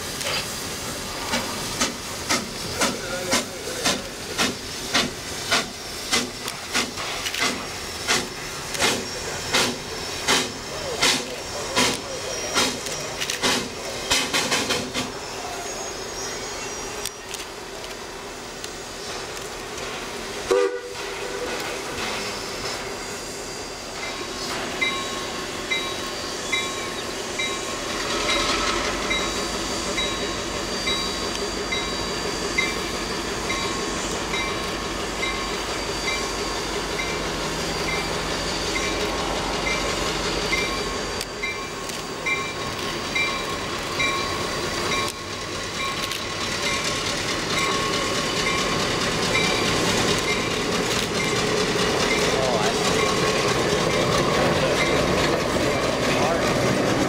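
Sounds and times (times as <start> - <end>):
diesel locomotive engine running: 0.0 - 57.0
steam hissing: 0.0 - 57.0
locomotive bell ringing: 21.4 - 56.9.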